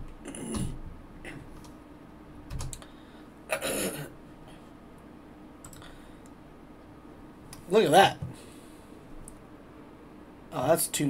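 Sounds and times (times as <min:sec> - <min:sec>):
computer keyboard keystrokes: 0:02.5 - 0:02.9, 0:05.6 - 0:05.9.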